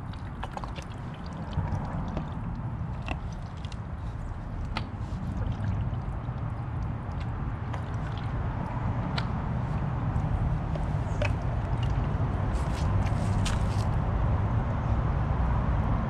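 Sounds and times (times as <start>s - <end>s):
steady low rumble: 0.0s - 16.0s
squeeze bottle squirts: 10.3s - 14.0s.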